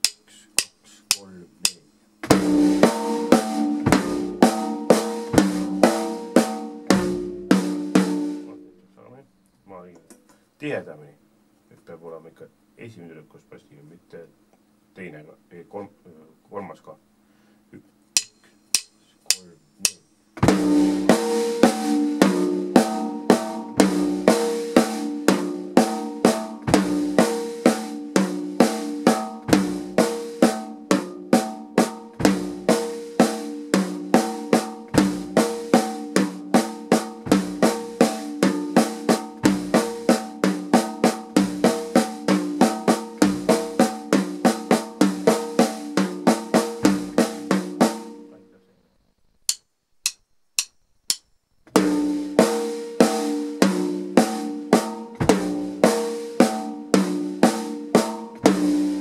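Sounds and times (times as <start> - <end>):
sharp clicks: 0.0 - 1.8, 18.2 - 20.0, 49.3 - 51.3
bass drum beat: 0.0 - 8.6, 18.8 - 48.1, 54.4 - 56.0, 57.0 - 59.0
snare drum played with sticks: 0.0 - 8.6, 18.2 - 48.2, 49.5 - 59.0.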